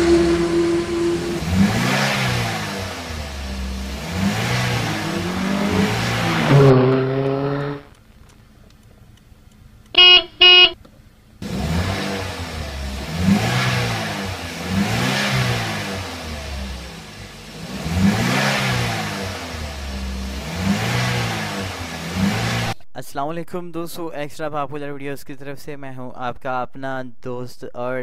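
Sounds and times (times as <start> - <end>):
car engine revving: 0.0 - 8.9, 11.4 - 22.8
car horn beeps: 9.9 - 10.8.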